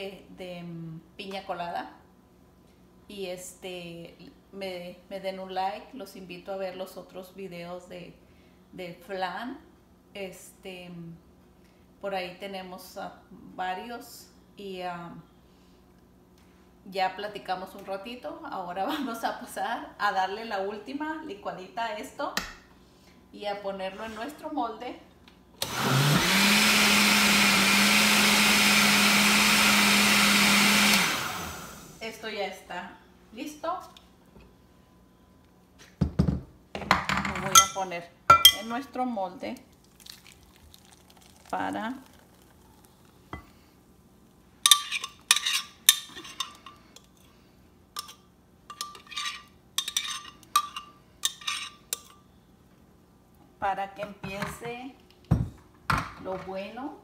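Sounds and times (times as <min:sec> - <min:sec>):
blender motor running: 0:25.6 - 0:32.0.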